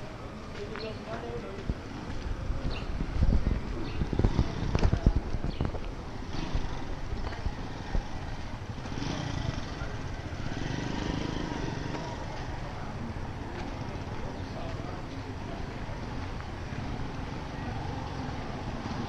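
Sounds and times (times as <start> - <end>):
hum of vehicle engines: 0.0 - 19.0
wind buffeting on microphone: 1.6 - 8.6.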